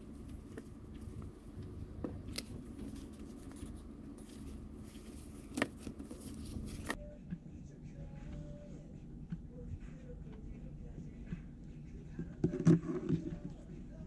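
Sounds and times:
paper rustling: 2.2s - 7.0s.

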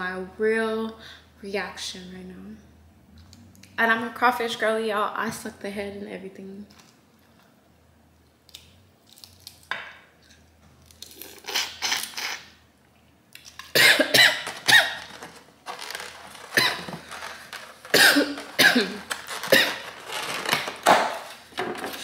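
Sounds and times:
person coughing: 13.8s - 15.0s, 16.5s - 17.0s, 17.9s - 19.9s.

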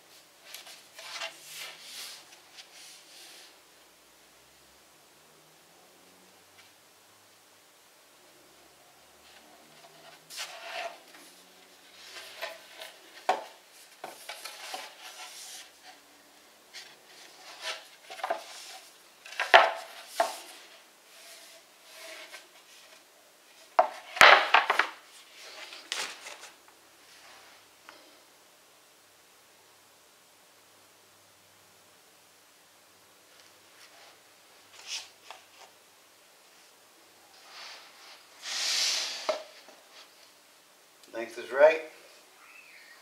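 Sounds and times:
wooden panels scraping: 9.2s - 16.0s, 16.7s - 26.6s.

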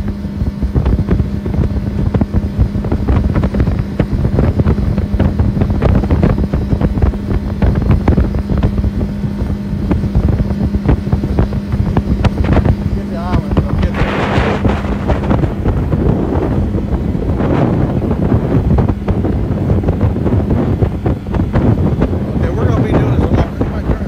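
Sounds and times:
hull thumping through waves: 0.0s - 24.0s
outboard motor drone: 0.0s - 24.0s
wind buffeting microphone: 0.0s - 24.0s.

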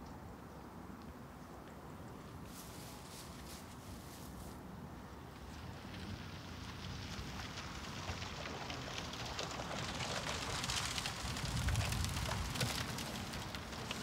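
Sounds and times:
low wind rumble: 0.1s - 14.0s
footsteps through dry grass: 2.4s - 4.7s.

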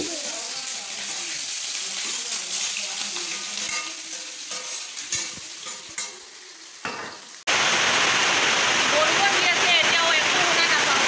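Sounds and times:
meat sizzling in a wok: 0.0s - 11.0s
spatula clinking on pan: 3.2s - 6.2s
loud steady hiss: 7.5s - 11.0s.

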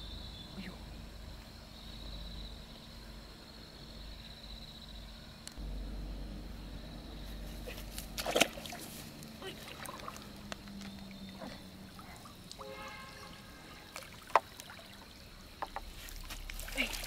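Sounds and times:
water splashing and trickling: 7.1s - 17.0s
sharp loud splashes: 8.1s - 10.3s.

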